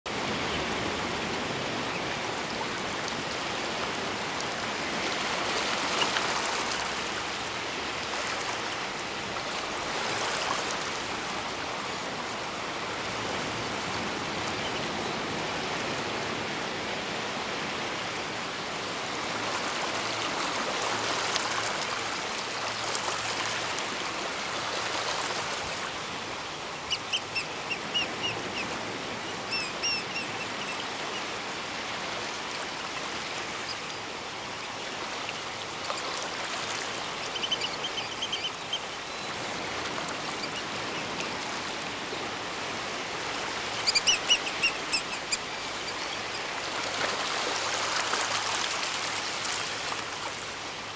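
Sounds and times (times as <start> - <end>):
high piping bird calls: 29.5 - 30.8.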